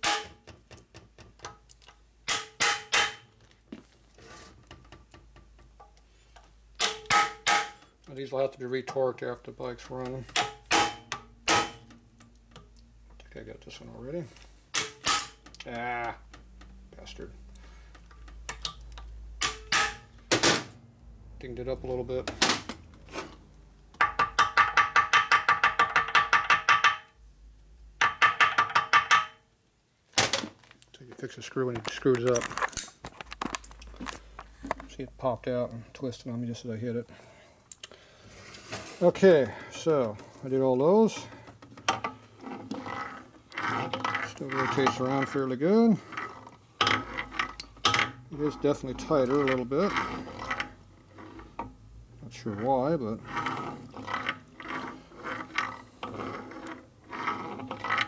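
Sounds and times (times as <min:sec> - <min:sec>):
hammer striking impact driver: 0:02.3 - 0:03.2.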